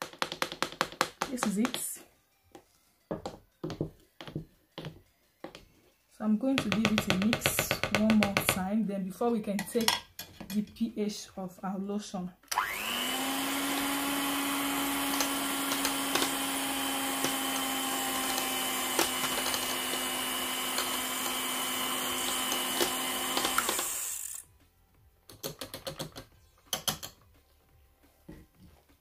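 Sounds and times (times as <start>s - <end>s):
electric hand mixer running: 12.5s - 24.5s.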